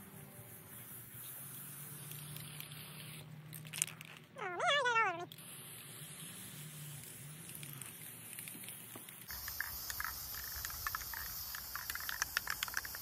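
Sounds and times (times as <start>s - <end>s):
spray paint can hissing: 0.0s - 3.9s, 5.3s - 13.0s.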